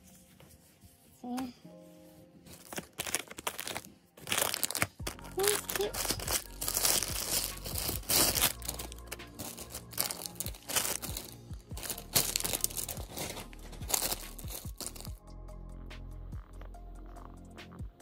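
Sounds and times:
background music: 0.0 - 18.0
plastic bags crinkling: 2.5 - 15.1.

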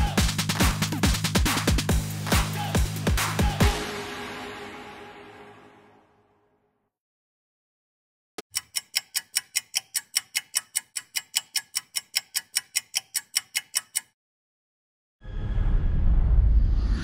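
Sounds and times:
clock ticking: 8.4 - 14.2.

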